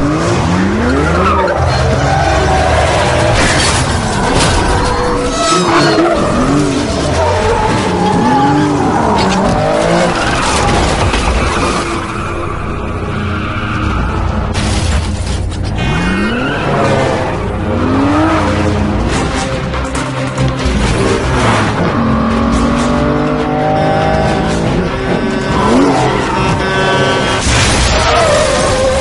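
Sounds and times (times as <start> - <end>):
car engines revving hard: 0.0 - 4.7, 5.5 - 14.6, 15.4 - 29.0
film music score: 0.0 - 29.0
tyres squealing: 4.2 - 10.6, 23.5 - 29.0.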